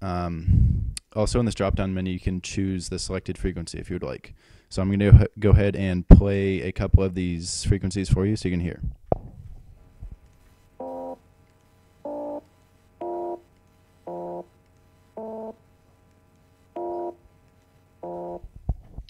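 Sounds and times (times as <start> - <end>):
sawtooth synth tones: 10.8 - 11.2, 12.1 - 15.6, 16.7 - 17.3, 18.0 - 18.4.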